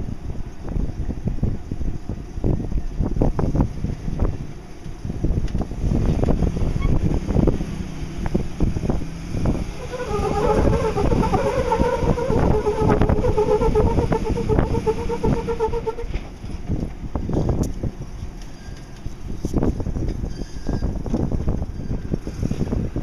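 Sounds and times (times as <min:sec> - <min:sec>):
wind buffeting microphone: 0:00.0 - 0:18.4, 0:19.0 - 0:23.0
low engine rumble: 0:00.0 - 0:23.0
steady whine: 0:09.2 - 0:16.4.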